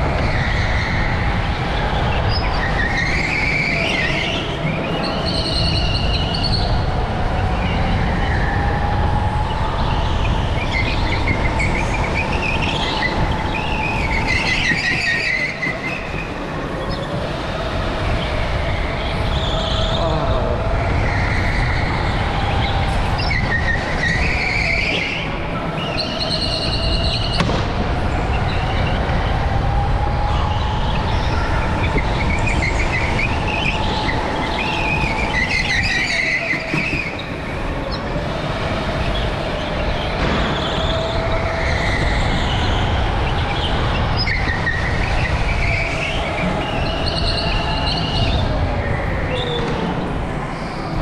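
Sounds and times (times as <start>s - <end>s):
tires squealing: 0.0s - 51.0s
go-kart motor: 30.3s - 51.0s.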